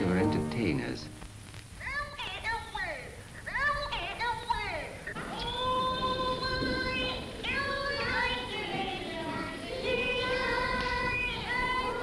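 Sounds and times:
children singing long notes: 5.2s - 12.0s.

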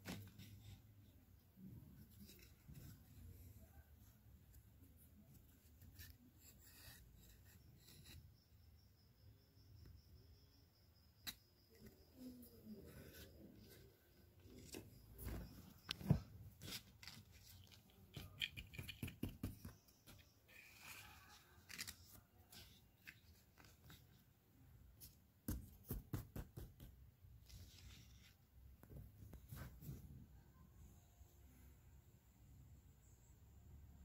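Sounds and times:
plastic figurines clicking: 17.5s - 19.7s.

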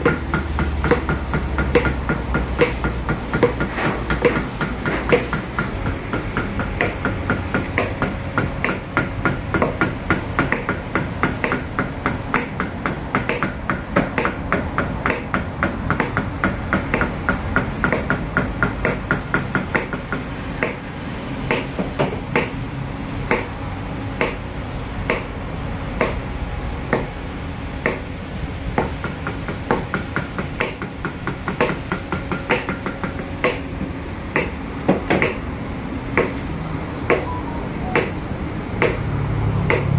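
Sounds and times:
mallet tapping chisel into wood: 0.0s - 20.8s, 23.3s - 23.5s, 24.2s - 24.4s, 25.1s - 25.3s, 26.0s - 26.2s, 27.8s - 28.0s, 28.8s - 33.7s, 34.3s - 35.4s, 36.2s - 36.4s, 37.1s - 38.2s, 38.8s - 39.0s, 39.7s - 39.9s.

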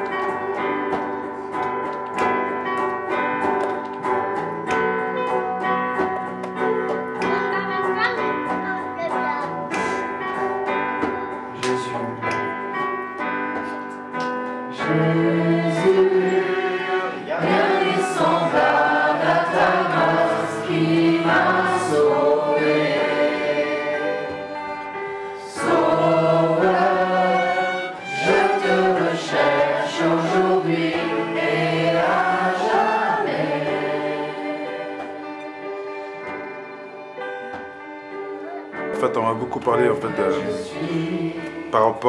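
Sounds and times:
choir singing sustained chords: 14.7s - 36.7s, 40.2s - 41.8s.

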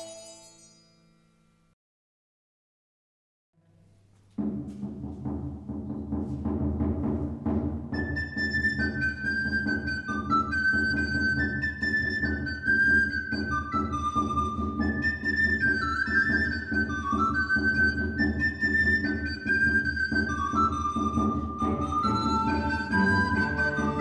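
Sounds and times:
drum beat: 4.4s - 8.0s
recorder melody: 8.0s - 24.0s.

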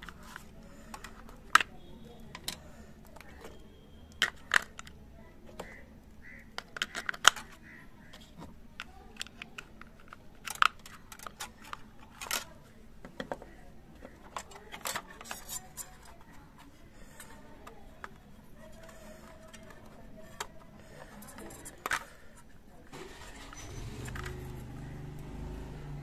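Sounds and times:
hard plastic clicking and tapping: 0.0s - 5.8s, 6.5s - 16.4s.

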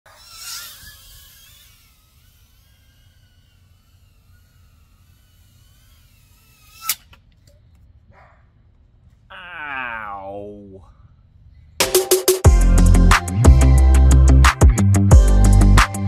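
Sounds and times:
drone propellers whining: 0.1s - 7.5s.

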